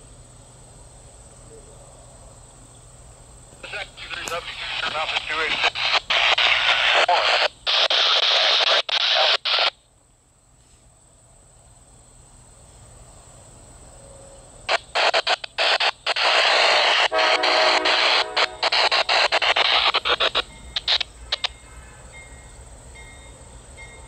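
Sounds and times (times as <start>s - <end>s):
radio static hiss: 3.5s - 9.8s, 14.7s - 21.6s
locomotive air horn: 17.0s - 18.7s, 21.2s - 22.4s.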